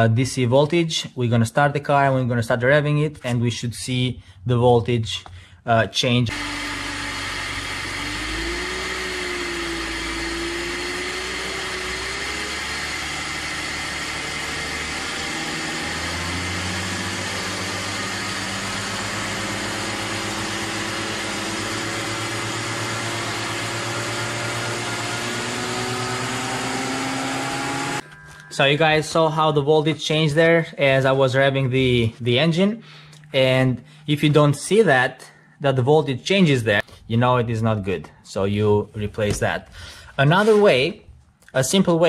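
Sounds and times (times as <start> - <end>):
car engine revving: 6.3 - 28.3.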